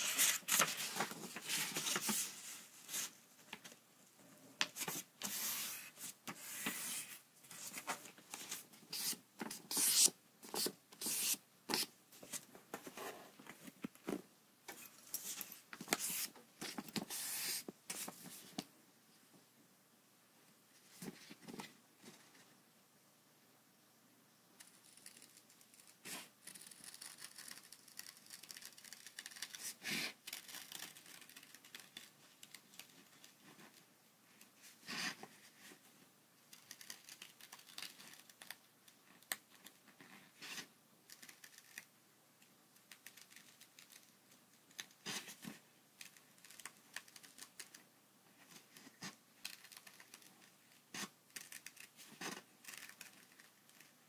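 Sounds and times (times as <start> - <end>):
paper rustling: 0.0 - 3.8.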